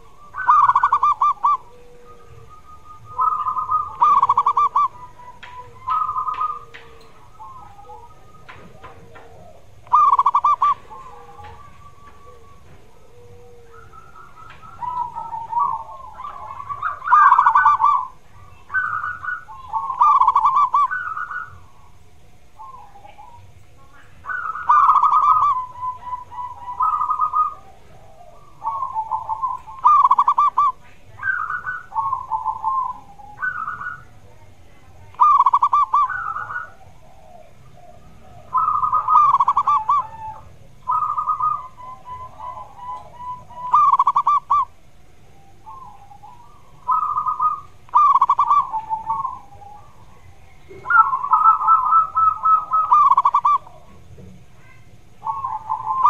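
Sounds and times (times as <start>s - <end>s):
dove cooing: 0.0s - 56.0s.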